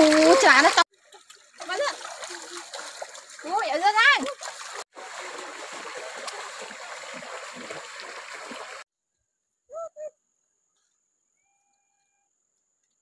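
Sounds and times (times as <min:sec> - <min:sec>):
water splashing in stream: 0:00.0 - 0:08.8.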